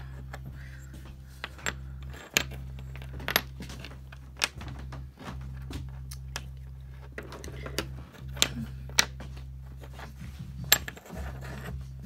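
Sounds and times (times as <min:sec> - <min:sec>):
steady low hum: 0:00.0 - 0:12.0
glass pieces clicking on wood: 0:01.4 - 0:04.8.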